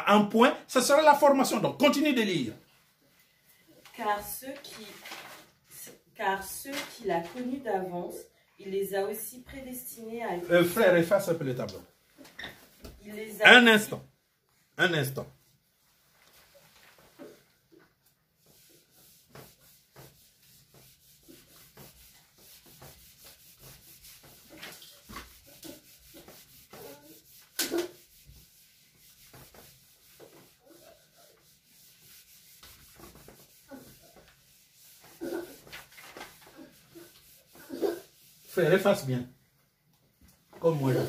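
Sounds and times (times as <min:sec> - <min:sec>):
eraser rubbing on whiteboard: 0:16.3 - 0:39.2, 0:40.6 - 0:41.0.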